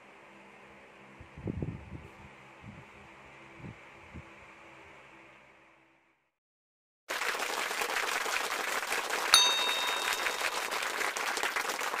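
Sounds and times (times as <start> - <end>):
applause: 7.1 - 12.0
bright chime: 9.4 - 11.2.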